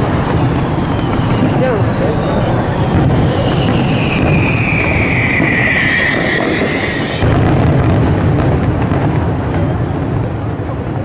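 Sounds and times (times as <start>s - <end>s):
falling whistling tone: 0.0s - 7.3s
fireworks bursts rumbling: 0.0s - 11.0s
fireworks cracks and bangs: 0.0s - 11.0s.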